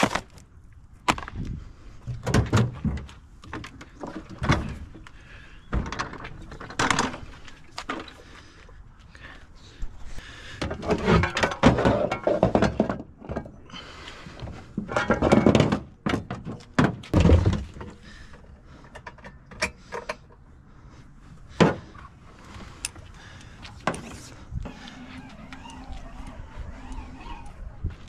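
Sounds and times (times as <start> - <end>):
equipment clattering and thudding: 10.6 - 13.6, 14.4 - 18.4.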